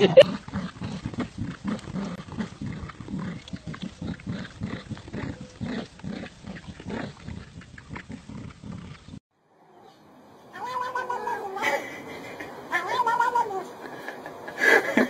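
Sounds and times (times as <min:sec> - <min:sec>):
dog growling in play: 0:00.2 - 0:09.2.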